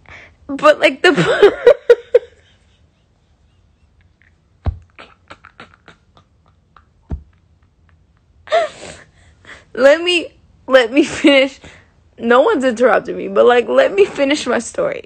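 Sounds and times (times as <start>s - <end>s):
low thumps: 4.6s - 5.2s, 7.0s - 7.4s
woman's breathy laughter: 4.9s - 9.7s.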